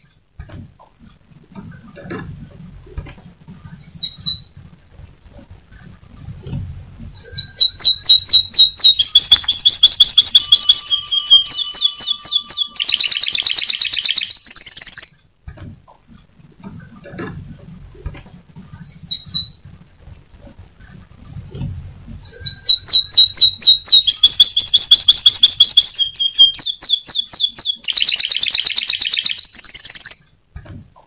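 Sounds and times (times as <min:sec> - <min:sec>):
canary singing: 0:03.5 - 0:04.7, 0:05.8 - 0:15.2, 0:18.7 - 0:19.6, 0:22.0 - 0:30.4.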